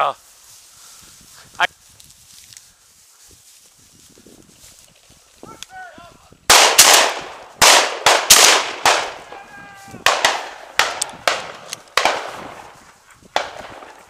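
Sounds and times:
shotgun shots with echo: 0:06.5 - 0:09.4, 0:10.0 - 0:12.7, 0:13.4 - 0:14.0.

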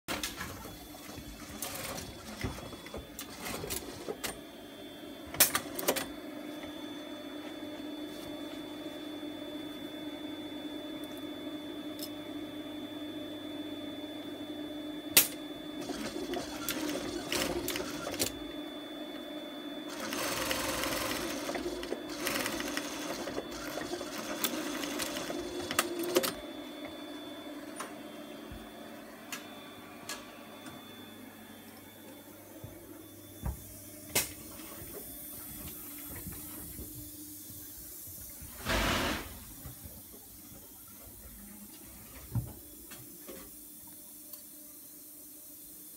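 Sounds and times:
sewing machine running: 0:00.1 - 0:04.3, 0:15.8 - 0:18.4, 0:19.9 - 0:26.4.

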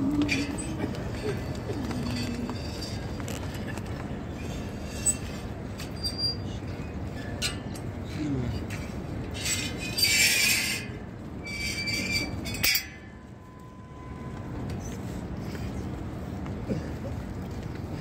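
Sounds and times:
outdoor crowd murmur: 0:00.0 - 0:09.4.

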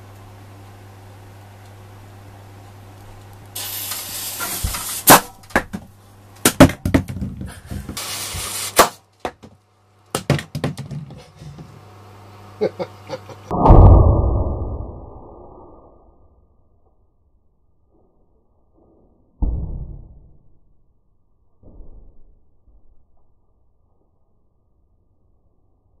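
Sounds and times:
firework fuse fizzing: 0:03.5 - 0:05.4
sharp bang: 0:13.5 - 0:14.5
deep muffled blast: 0:13.5 - 0:15.3.

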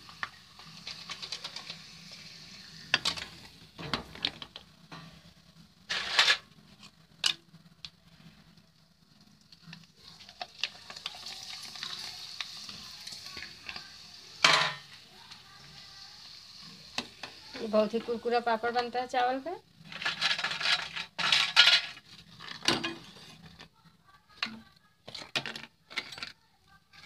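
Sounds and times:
food sizzling in hot oil: 0:00.0 - 0:06.6, 0:08.5 - 0:23.6.

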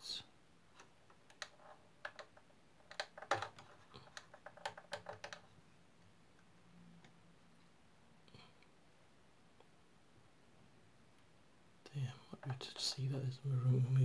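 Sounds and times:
fingers clicking small plastic parts: 0:00.8 - 0:05.5.

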